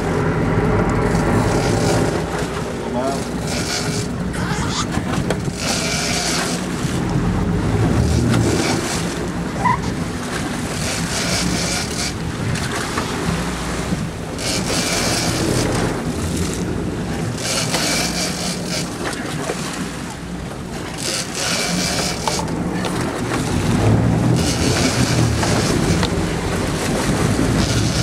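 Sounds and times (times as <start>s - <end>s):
boat engine running: 0.0s - 28.0s
wind buffeting microphone: 11.9s - 14.8s, 22.4s - 28.0s
water rushing past: 22.1s - 28.0s.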